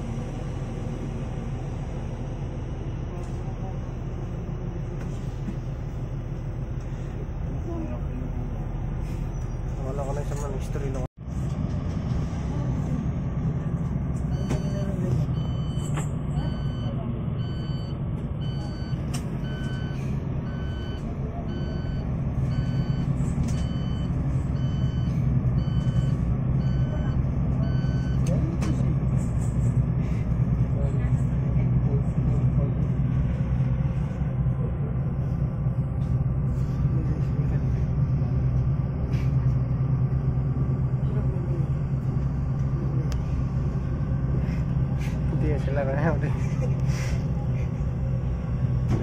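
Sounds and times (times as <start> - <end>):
low engine drone: 0.0 - 49.0
reversing alarm beeping: 14.3 - 28.3.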